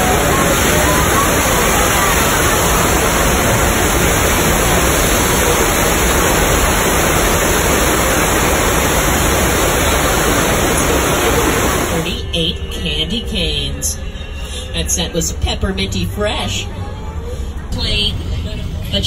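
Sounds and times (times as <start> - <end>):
water gushing: 0.0 - 12.1.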